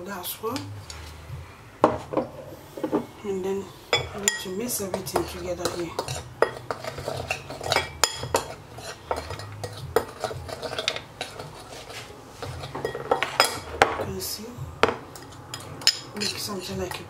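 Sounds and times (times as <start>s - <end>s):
spoon scraping ceramic bowl: 3.9s - 13.8s, 15.2s - 16.6s.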